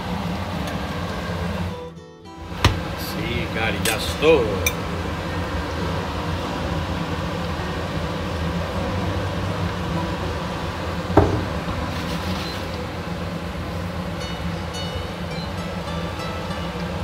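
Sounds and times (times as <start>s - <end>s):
sharp knock: 11.2s - 11.6s.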